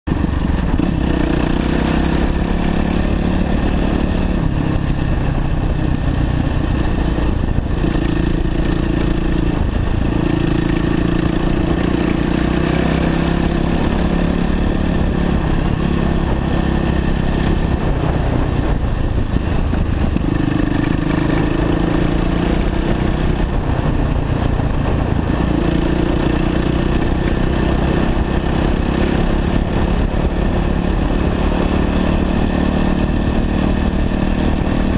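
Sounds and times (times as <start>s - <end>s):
dirt bike engine revving: 0.6s - 4.5s, 6.8s - 18.6s.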